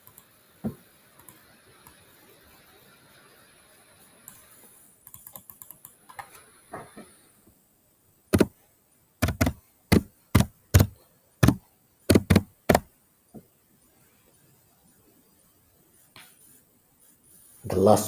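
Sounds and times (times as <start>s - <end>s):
computer keyboard typing: 5.0s - 6.0s, 8.3s - 8.5s, 9.2s - 12.9s.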